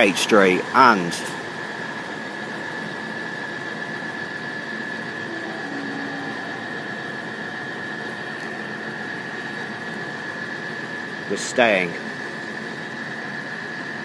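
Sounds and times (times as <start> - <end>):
steady background hiss: 0.0 - 14.0
high-pitched whine: 0.6 - 14.0
faint short low tones: 5.2 - 7.9.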